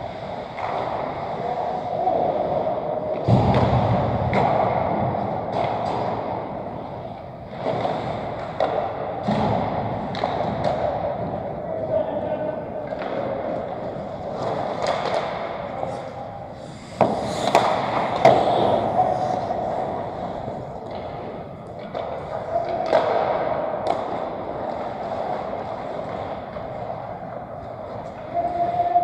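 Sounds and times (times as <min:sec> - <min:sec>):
hockey sticks clacking puck: 0:00.1 - 0:29.0
players' voices: 0:00.5 - 0:03.5, 0:08.6 - 0:27.2
skate blades scraping ice: 0:13.0 - 0:29.0.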